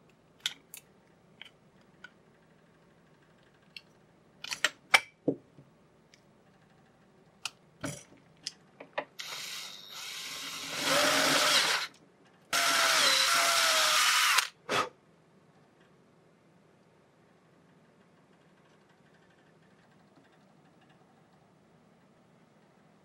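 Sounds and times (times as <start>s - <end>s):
power drill boring plastic: 9.2s - 11.9s, 12.5s - 14.9s.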